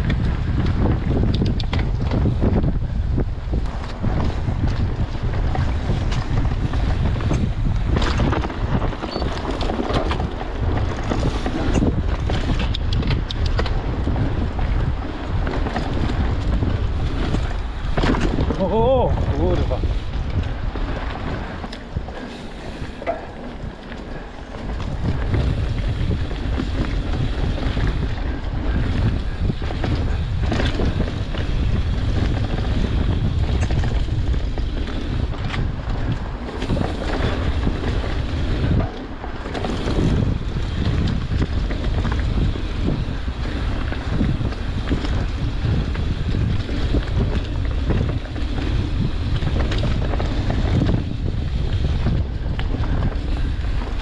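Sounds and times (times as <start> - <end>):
bike tyres rolling on dirt trail: 0.0 - 54.0
wind buffeting microphone: 0.0 - 54.0
bike knocking over bumps: 3.8 - 19.0.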